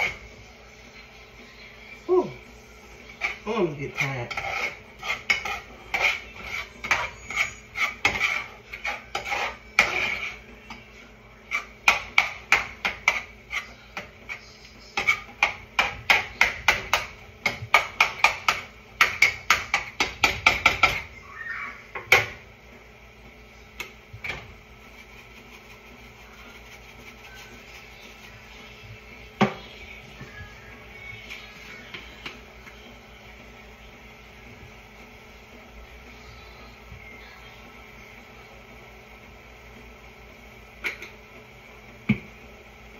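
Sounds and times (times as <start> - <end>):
utensil clanking in cooking pot: 11.5 - 14.4.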